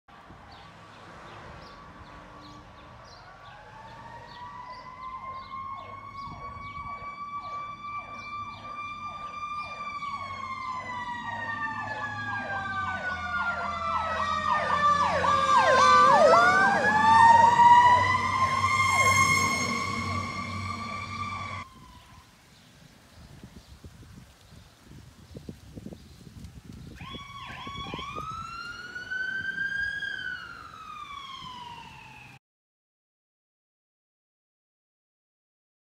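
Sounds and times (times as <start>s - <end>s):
fire engine siren wail: 1.8s - 22.4s, 27.0s - 32.4s
fire engine siren yelp: 1.8s - 22.4s, 27.0s - 32.4s.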